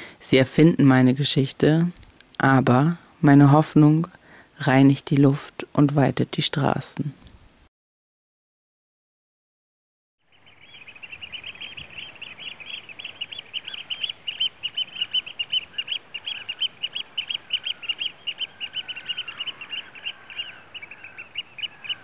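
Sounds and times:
birds calling high sharp notes: 10.3s - 22.0s.

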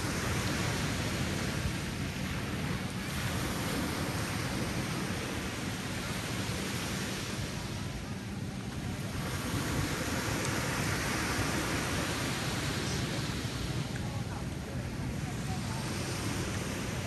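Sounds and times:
ocean surf on a beach: 0.0s - 17.0s.

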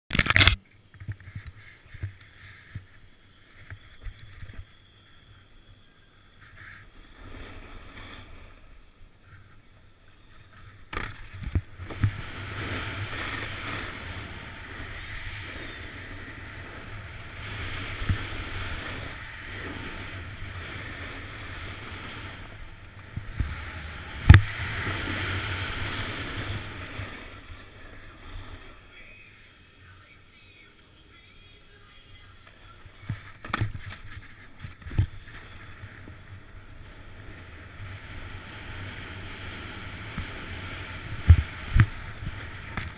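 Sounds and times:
snowboard scraping over snow: 6.6s - 8.7s, 10.2s - 28.8s, 32.8s - 42.9s.

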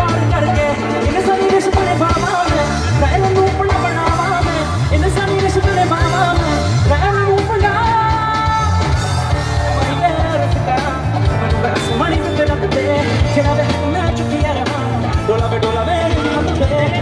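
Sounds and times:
bass and drum beat: 0.0s - 17.0s
lead singer singing: 0.0s - 17.0s
live band playing loud: 0.0s - 17.0s.

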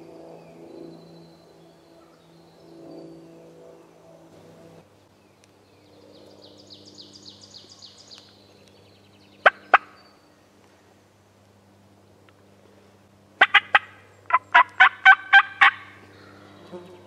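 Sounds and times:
turkey calls: 9.4s - 10.0s, 13.4s - 16.0s.

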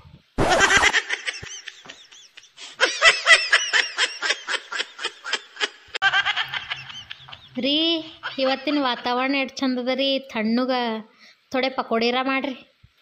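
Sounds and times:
short burst of noise: 0.4s - 0.9s
high-pitched staccato laughter: 0.4s - 9.1s.

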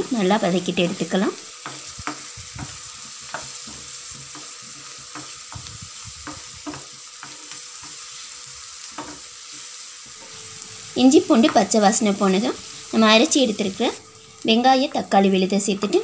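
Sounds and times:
onion and paste sizzling in oil: 0.0s - 16.0s
wooden spoon scraping a pan: 1.5s - 13.9s.

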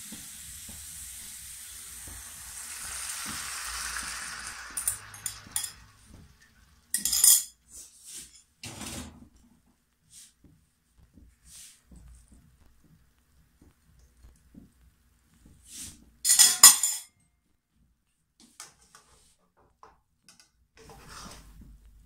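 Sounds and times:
metal spatula scraping a pan: 3.2s - 9.2s, 20.8s - 21.5s
ringing clink of kitchenware: 7.0s - 7.5s, 16.3s - 17.1s.

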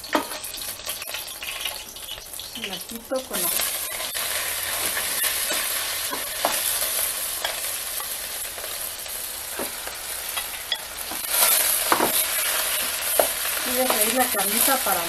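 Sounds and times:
meat sizzling in hot oil: 0.0s - 15.0s
metal spoon scraping and tapping: 0.1s - 1.2s, 3.5s - 8.2s, 10.3s - 14.2s.

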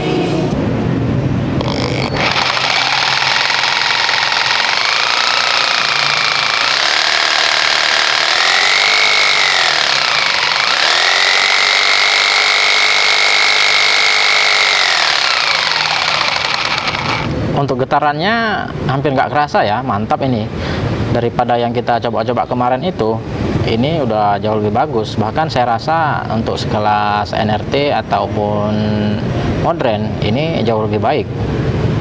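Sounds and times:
jigsaw running with no load: 1.6s - 17.4s.

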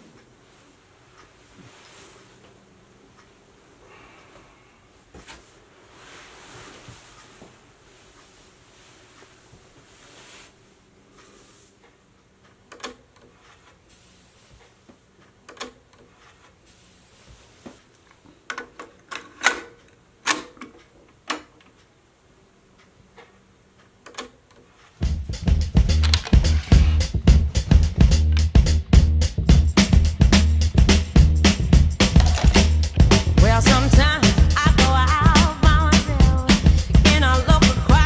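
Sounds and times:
cassette deck mechanical clicks: 26.0s - 26.4s.

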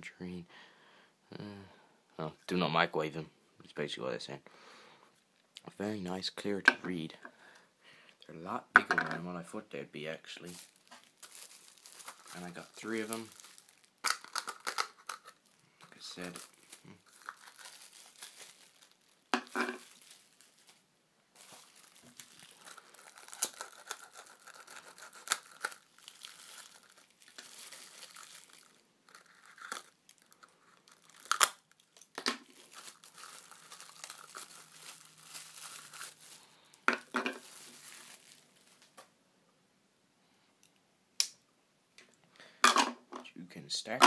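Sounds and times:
plastic wrap crinkling and tearing: 10.2s - 39.0s.

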